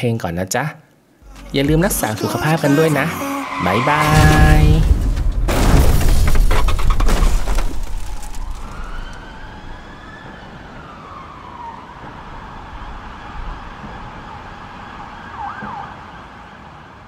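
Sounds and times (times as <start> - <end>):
emergency siren wailing: 1.2 - 4.9, 8.3 - 17.0
car crash with clattering: 4.0 - 9.1.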